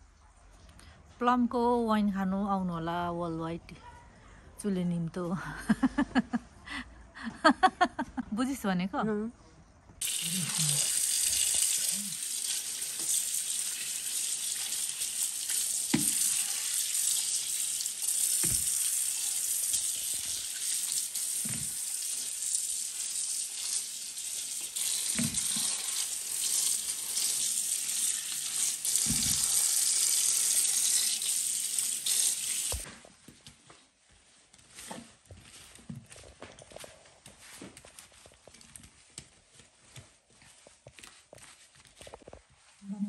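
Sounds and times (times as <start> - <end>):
tap water running onto fruit: 10.0 - 32.9.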